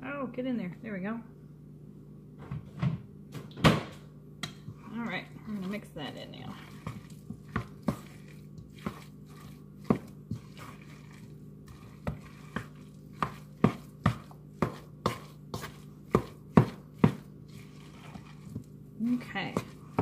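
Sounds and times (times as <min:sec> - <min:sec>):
spoon knocking a mixing bowl: 0:12.0 - 0:17.3.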